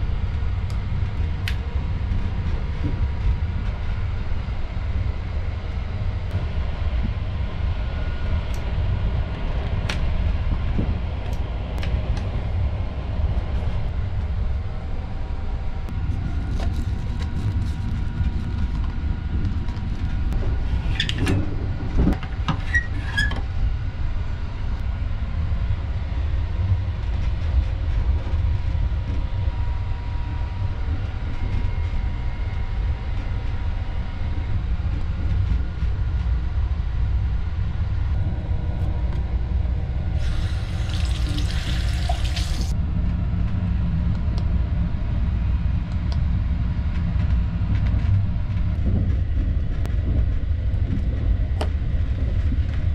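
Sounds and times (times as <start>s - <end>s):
train rumbling: 0.0s - 52.9s
water running from tap: 40.2s - 42.7s.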